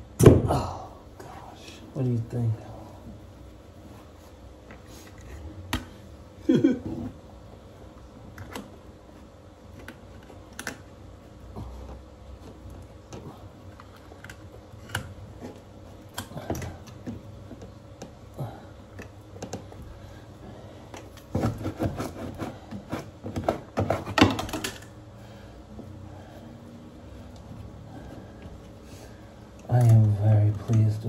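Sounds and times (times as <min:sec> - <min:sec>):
wallpaper crinkling and clicking: 0:29.5 - 0:31.0.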